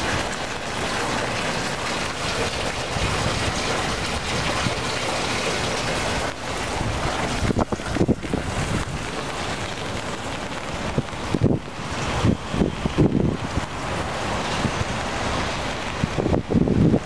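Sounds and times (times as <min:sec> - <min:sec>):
rain falling: 0:00.0 - 0:17.0
water rushing along gutter: 0:00.0 - 0:17.0
wind thumping on microphone: 0:02.6 - 0:04.9, 0:06.2 - 0:17.0.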